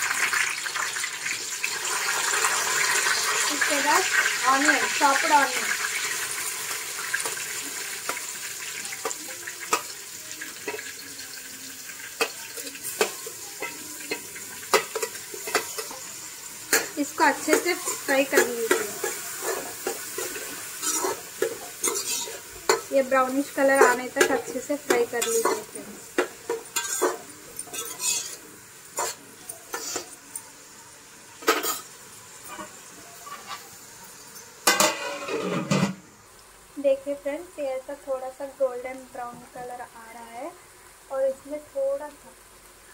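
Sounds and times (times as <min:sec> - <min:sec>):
onions sizzling in oil: 0:00.0 - 0:42.9
spoon scraping metal pot: 0:16.7 - 0:22.9, 0:26.5 - 0:28.4, 0:34.7 - 0:36.0.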